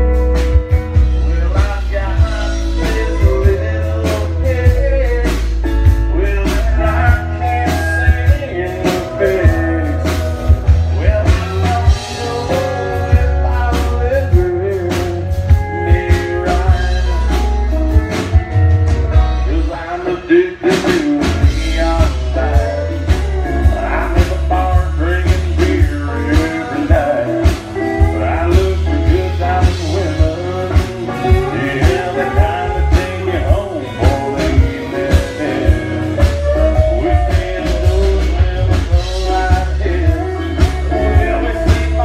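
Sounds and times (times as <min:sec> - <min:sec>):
drums keeping a steady beat: 0:00.0 - 0:42.0
live country band playing: 0:00.0 - 0:42.0
person singing: 0:00.0 - 0:42.0.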